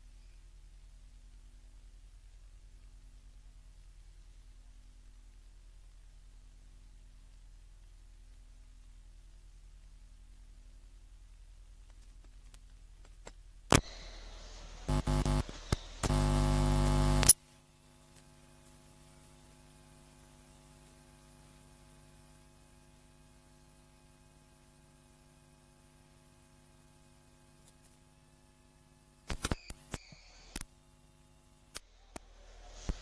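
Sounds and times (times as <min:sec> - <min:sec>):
faint mains hum: 0:00.0 - 0:33.0
loud electrical buzz: 0:13.7 - 0:31.8
electrical click: 0:14.9 - 0:17.4.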